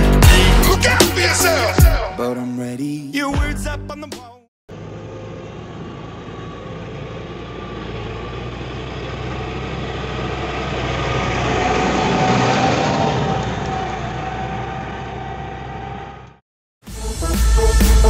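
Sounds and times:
tractor diesel engine passing: 4.7s - 16.4s.

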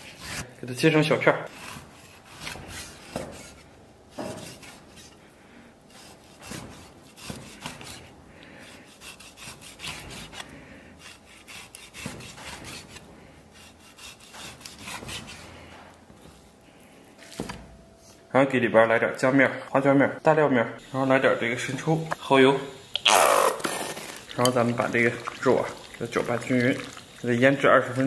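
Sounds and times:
cleaver rasping through meat: 1.5s - 5.2s, 5.9s - 15.8s.

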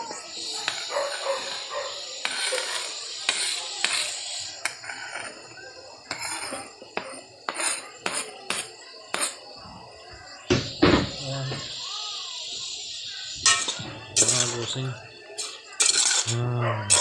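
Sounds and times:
meat sizzling in pot: 0.0s - 9.6s, 10.4s - 17.0s
metal spoon scraping cutting board: 0.6s - 5.4s, 6.1s - 9.4s, 13.4s - 14.8s, 15.4s - 17.0s
spoon clinking against pot: 13.4s - 14.8s, 15.4s - 17.0s.

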